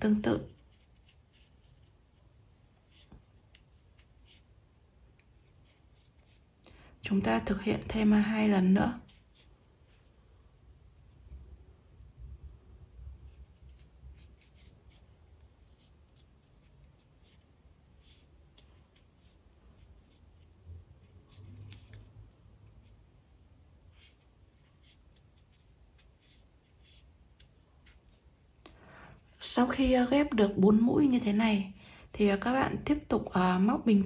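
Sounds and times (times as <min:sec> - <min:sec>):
crochet hook ticking and scratching: 0:00.5 - 0:06.4.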